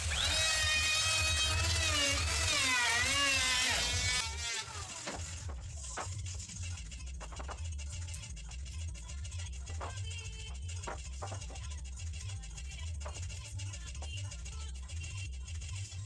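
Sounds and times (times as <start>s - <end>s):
electric wood router whining: 0.0s - 5.6s.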